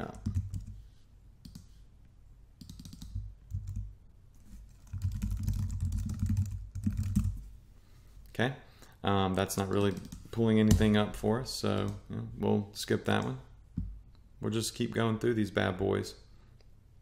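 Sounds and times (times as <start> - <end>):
computer keyboard typing: 0.0 - 0.8, 2.6 - 3.9, 4.7 - 7.4, 9.6 - 10.2.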